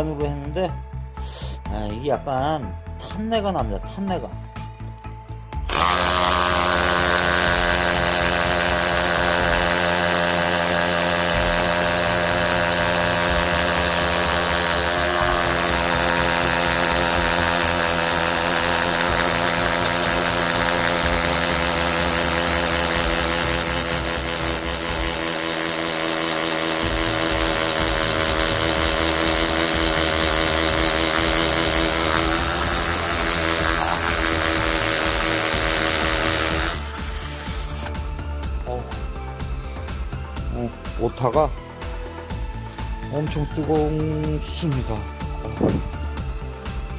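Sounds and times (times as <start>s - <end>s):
hammer drill boring into concrete: 5.6s - 38.0s.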